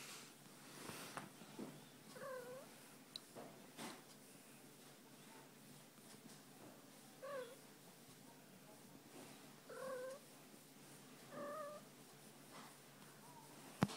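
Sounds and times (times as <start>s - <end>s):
cat meowing: 11.3s - 11.8s.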